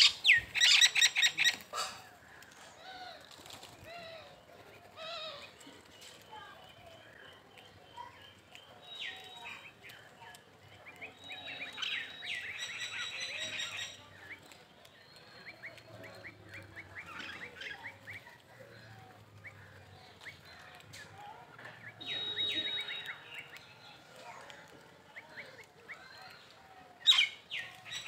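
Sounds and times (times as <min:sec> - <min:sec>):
birds chirping: 0:00.0 - 0:28.0
drawn-out bird call: 0:21.8 - 0:23.6.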